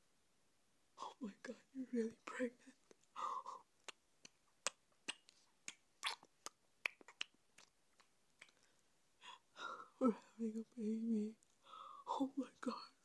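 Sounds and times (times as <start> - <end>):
breathy gasp: 11.6 - 12.1.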